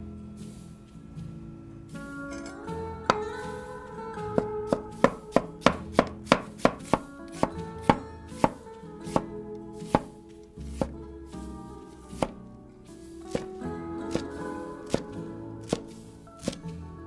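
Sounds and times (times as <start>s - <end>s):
cleaver slicing onion on board: 4.4s - 11.0s, 11.8s - 12.4s, 13.2s - 16.7s.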